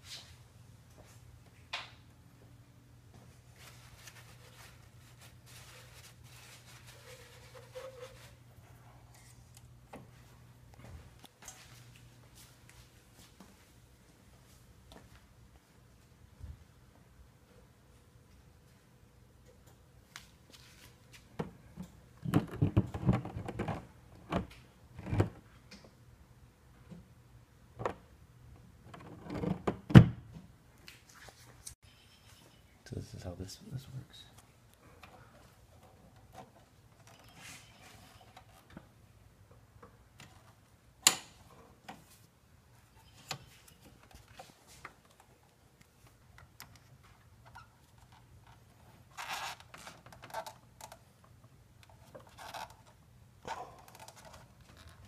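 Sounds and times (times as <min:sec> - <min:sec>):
soft rustling: 0:03.1 - 0:16.6.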